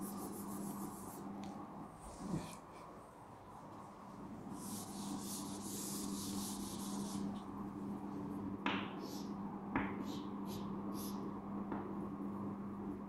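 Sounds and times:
chalk scratching on chalkboard: 0.0 - 1.3, 4.6 - 7.4
steady low hum: 0.0 - 13.0
chalk tapping on board: 8.7 - 11.2.

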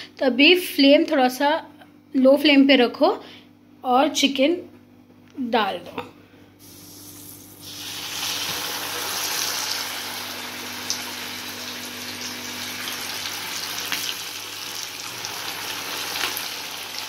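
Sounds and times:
chicken sizzling in hot oil: 6.6 - 17.0.

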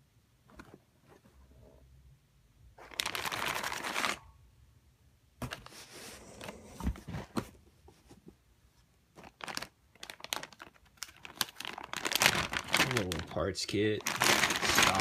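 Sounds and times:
packing material rustling: 2.8 - 4.2, 9.2 - 15.0.

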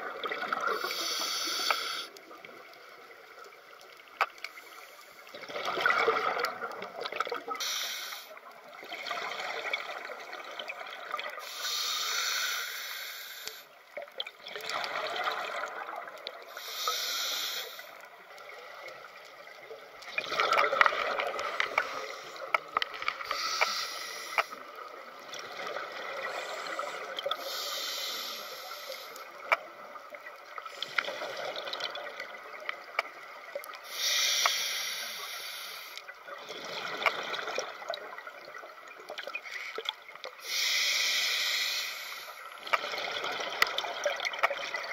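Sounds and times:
regulator inhalation hiss: 0.8 - 2.2, 7.6 - 8.4, 11.4 - 13.7, 16.6 - 18.0, 23.3 - 24.6, 26.3 - 29.3, 33.9 - 36.0, 40.4 - 42.4.

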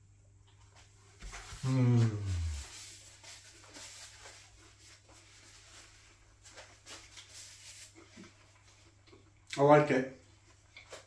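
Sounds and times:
paper napkin rustling: 1.1 - 8.8
man humming mmm: 1.6 - 2.9
faint chewing: 7.9 - 9.6, 10.2 - 11.0.

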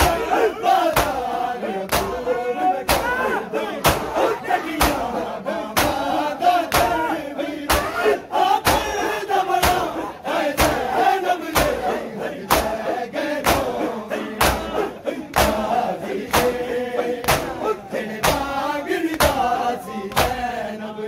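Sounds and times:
hands slapping chests: 0.0 - 3.2, 3.8 - 4.2, 4.8 - 5.1, 5.7 - 7.0, 7.7 - 8.0, 8.6 - 10.0, 10.6 - 12.8, 13.4 - 13.8, 14.4 - 20.5
men chanting together: 0.0 - 21.0.

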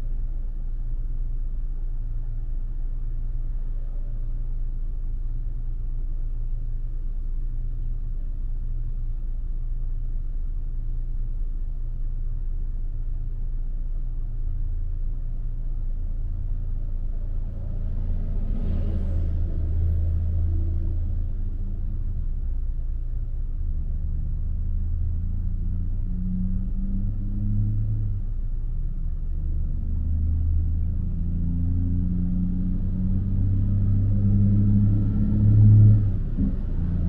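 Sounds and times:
bus passing close: 17.2 - 22.0.

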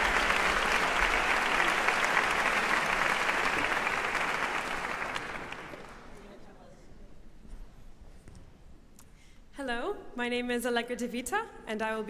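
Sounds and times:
large audience applauding: 0.0 - 6.2.

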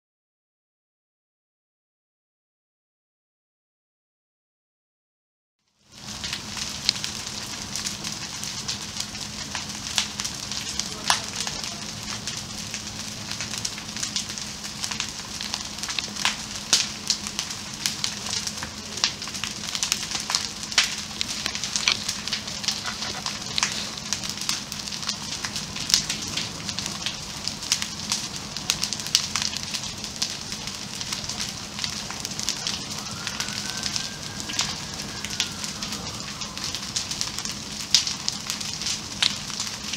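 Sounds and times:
fire crackling and hissing: 5.7 - 39.9
sharp pops and snaps: 13.4 - 27.1.

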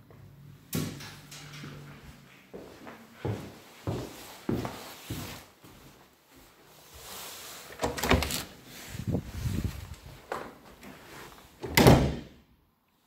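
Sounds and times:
footsteps on carpet: 2.5 - 6.7.

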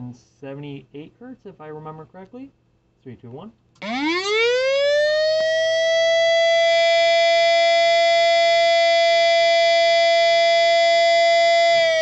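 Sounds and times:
electronic siren alert tone: 3.8 - 12.0.

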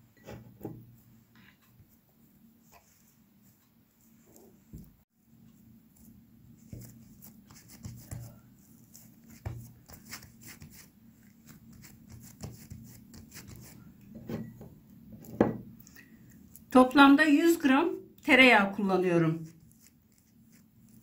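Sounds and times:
hands patting dough: 5.9 - 13.8.

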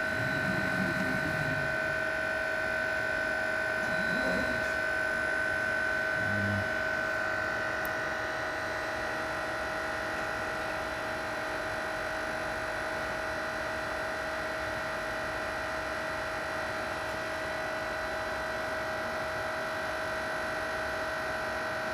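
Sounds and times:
lathe motor electric whine: 0.0 - 12.7.

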